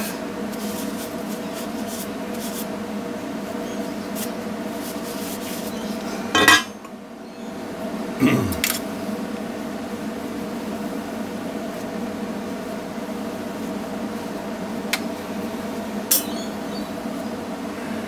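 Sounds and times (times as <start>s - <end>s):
steady background hum: 0.0s - 18.0s
cloth rubbing on metal pipe: 0.4s - 2.8s, 4.0s - 5.8s.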